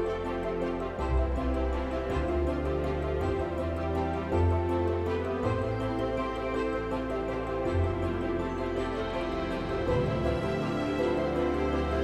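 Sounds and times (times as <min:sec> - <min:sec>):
soft instrumental music: 0:00.0 - 0:12.0.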